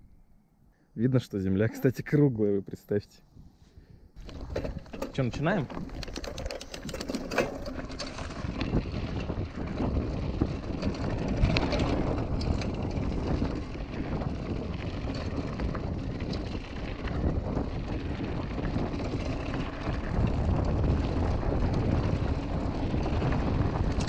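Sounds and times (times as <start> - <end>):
wind on microphone: 3.3 - 24.0
loose stones clicking: 4.2 - 8.7
bike tyres rumbling on gravel: 4.2 - 24.0.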